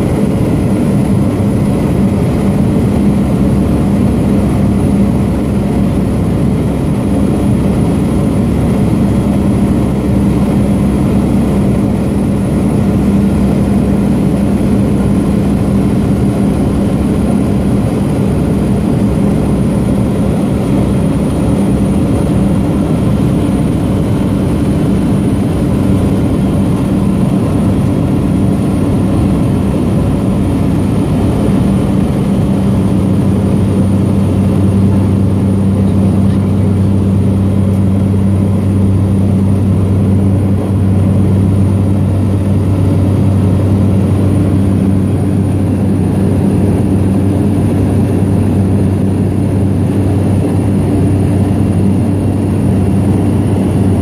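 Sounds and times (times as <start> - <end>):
plane engine and propeller drone: 0.0 - 54.0.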